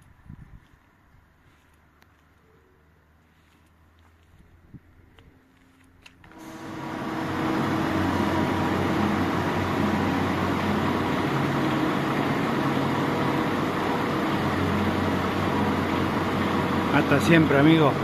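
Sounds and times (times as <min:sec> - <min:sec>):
truck diesel engine idling: 0:06.4 - 0:18.0.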